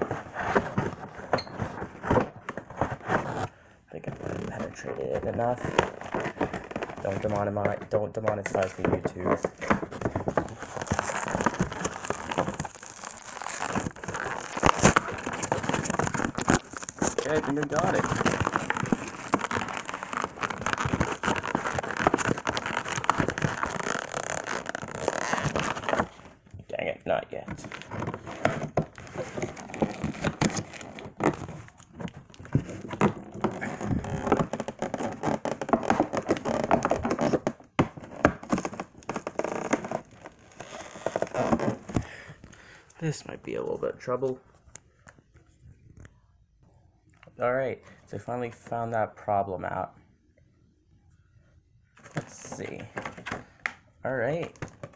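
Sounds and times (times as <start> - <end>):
plastic packaging crackling: 8.5 - 26.4
cardboard tearing and crinkling: 8.6 - 26.4, 27.6 - 42.0.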